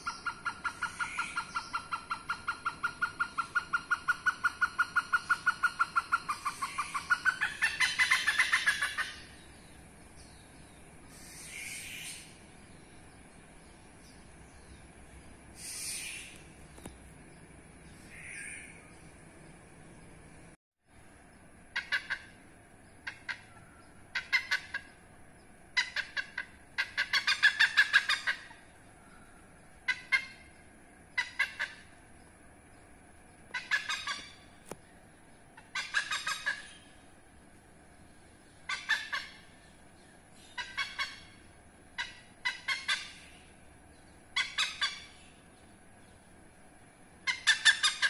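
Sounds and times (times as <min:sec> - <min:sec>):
hornbill calling: 0:00.0 - 0:13.3, 0:15.5 - 0:16.9, 0:17.9 - 0:19.1, 0:21.7 - 0:25.1, 0:25.7 - 0:32.0, 0:33.5 - 0:34.6, 0:35.5 - 0:37.2, 0:38.5 - 0:46.2, 0:47.2 - 0:48.0.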